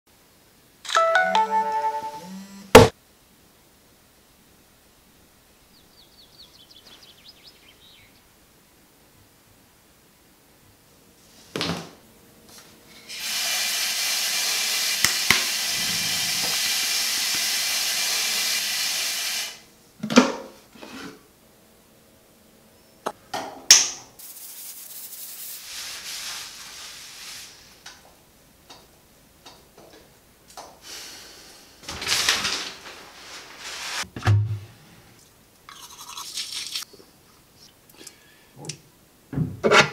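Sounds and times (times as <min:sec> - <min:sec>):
shower water spraying: 0:13.1 - 0:19.6, 0:24.2 - 0:27.8.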